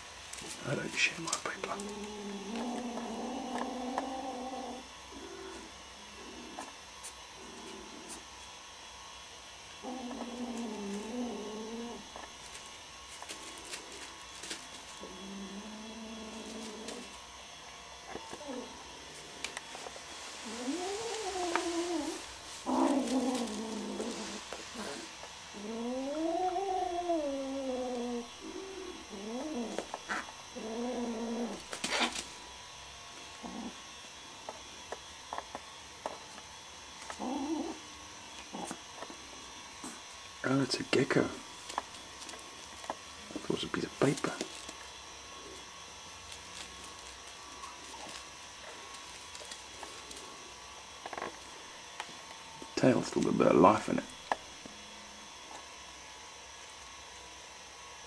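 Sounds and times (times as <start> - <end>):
kitten growling: 0.4 - 8.3, 9.8 - 12.6, 13.2 - 17.2, 18.0 - 32.4, 33.3 - 33.8, 37.1 - 39.2.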